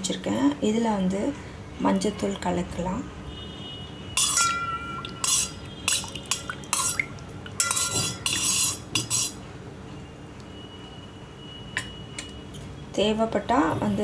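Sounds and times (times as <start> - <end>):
spoon clinking in metal bowl: 4.2 - 9.4.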